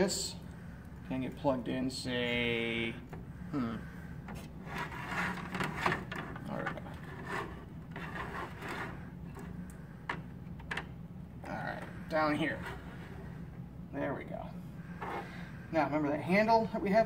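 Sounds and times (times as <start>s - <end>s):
plastic toy parts scraping and clicking: 4.3s - 10.9s.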